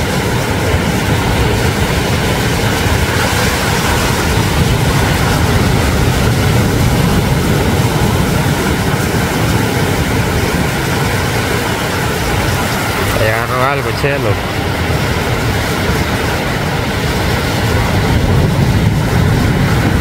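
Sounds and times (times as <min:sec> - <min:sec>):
sea surf roaring: 0:00.0 - 0:20.0.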